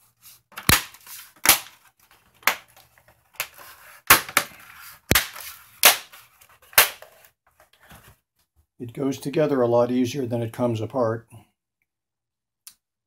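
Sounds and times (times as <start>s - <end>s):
plastic cover snapping into place: 0.6s - 1.8s, 5.1s - 7.1s.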